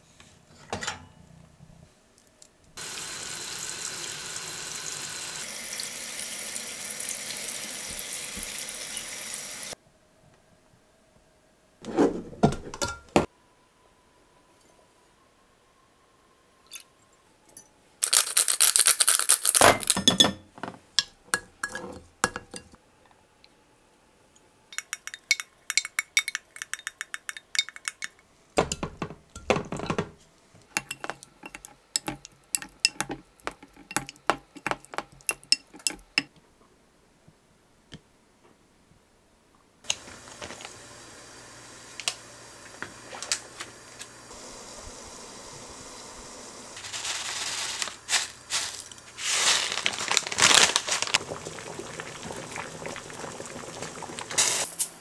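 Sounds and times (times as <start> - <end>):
pan of water heating hiss: 2.8 - 9.8, 39.8 - 55.0
tomatoes clattering: 46.8 - 51.2.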